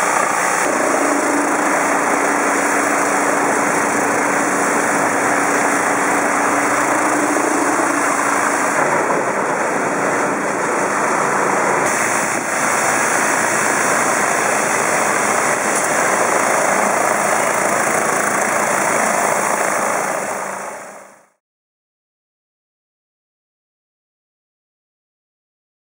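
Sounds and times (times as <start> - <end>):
high-pressure water jets spraying: 0.0 - 19.2
engine hum: 0.0 - 21.1.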